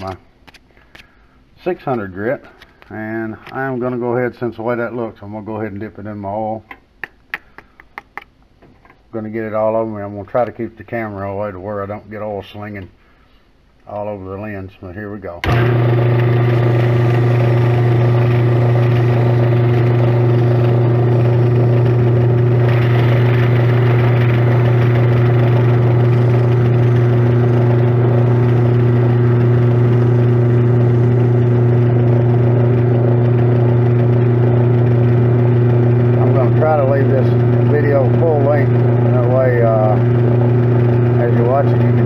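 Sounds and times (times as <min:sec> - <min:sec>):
lathe motor hum: 0:15.4 - 0:42.0.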